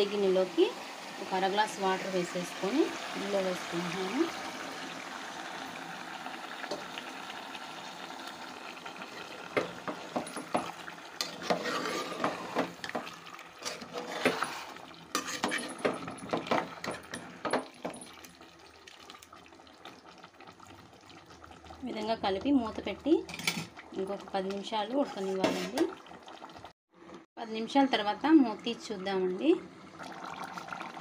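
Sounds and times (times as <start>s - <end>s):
water pouring into a pot: 0.1s - 24.6s, 25.2s - 26.7s, 29.7s - 31.0s
metal spatula scraping metal pot: 11.2s - 13.0s, 13.6s - 16.0s, 24.9s - 25.9s.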